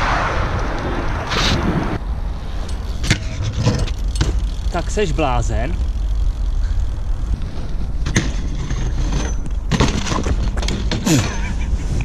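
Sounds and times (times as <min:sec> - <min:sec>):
bike rolling on asphalt: 0:00.0 - 0:12.0
rider falling on ground: 0:08.0 - 0:11.6.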